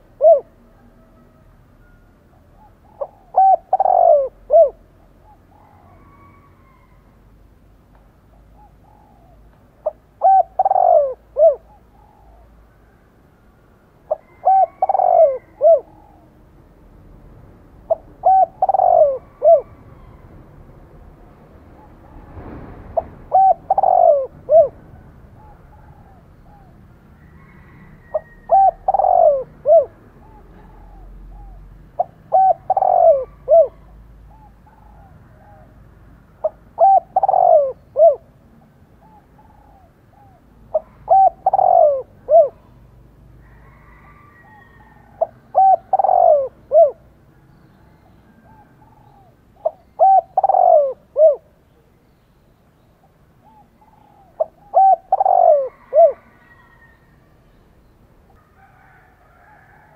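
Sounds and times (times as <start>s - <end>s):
dove cooing: 0.0s - 7.0s, 8.3s - 12.8s, 14.0s - 16.4s, 17.8s - 20.2s, 22.9s - 35.8s, 36.4s - 47.1s, 48.0s - 51.8s, 53.4s - 57.2s.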